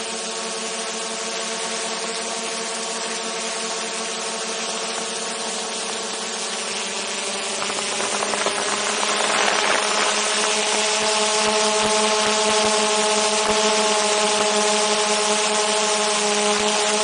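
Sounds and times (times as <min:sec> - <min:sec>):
drone propellers humming: 0:00.0 - 0:17.0
rushing noise: 0:07.3 - 0:11.8.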